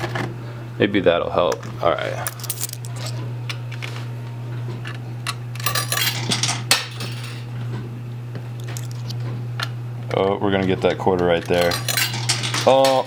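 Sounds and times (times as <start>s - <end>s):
low machine hum: 0.0s - 13.0s
coins clinking and sliding: 2.1s - 3.9s, 5.3s - 7.4s, 8.6s - 9.2s, 11.4s - 13.0s.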